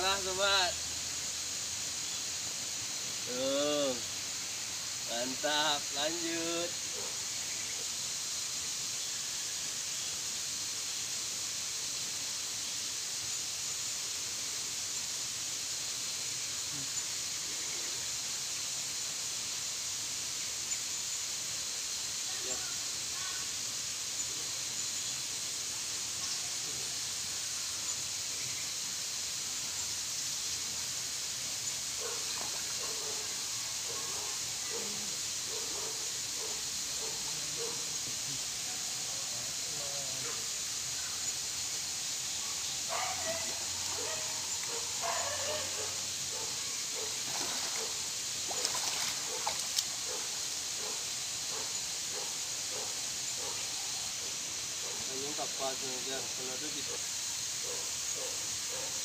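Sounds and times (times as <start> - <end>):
high-pitched outdoor hiss: 0.0 - 59.0
water sloshing and splashing: 47.3 - 47.9, 48.5 - 49.8.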